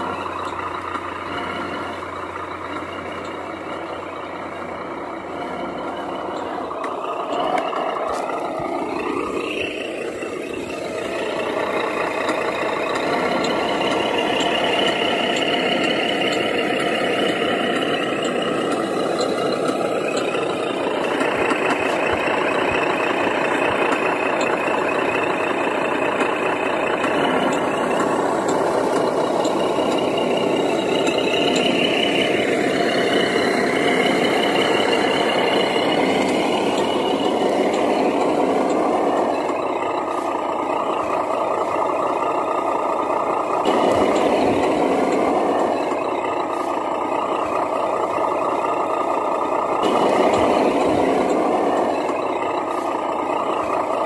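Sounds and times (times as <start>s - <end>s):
toy truck engine and drivetrain: 0.0s - 54.0s.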